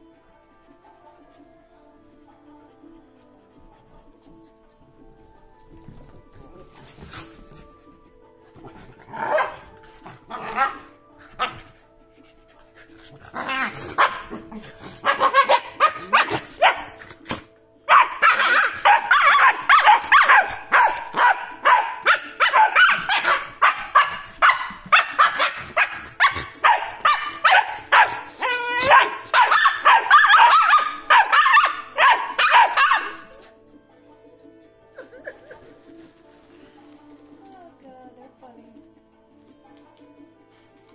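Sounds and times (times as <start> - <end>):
dogs barking and yapping: 6.2 - 34.3.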